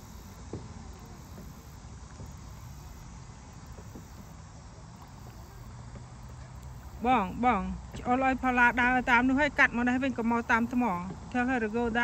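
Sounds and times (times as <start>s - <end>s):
faint ticks: 5.0s - 7.0s.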